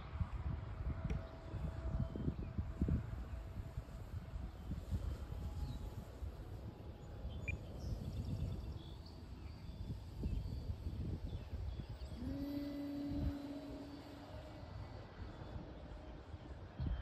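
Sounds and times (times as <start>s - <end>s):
wind noise on microphone: 0.0s - 17.0s
model airplane motor hum: 0.9s - 16.6s
bird chirps: 7.0s - 12.2s.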